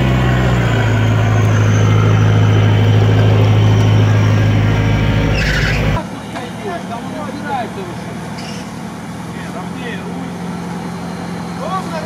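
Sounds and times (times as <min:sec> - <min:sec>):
vehicle engine running under load: 0:00.0 - 0:12.0.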